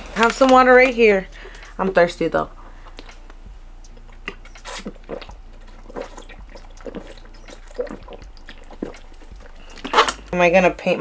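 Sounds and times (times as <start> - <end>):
person gulping water: 2.7 - 10.4.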